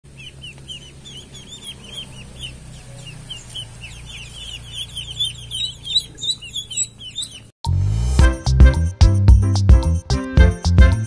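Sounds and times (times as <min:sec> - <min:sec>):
ducklings peeping: 0:00.1 - 0:07.6.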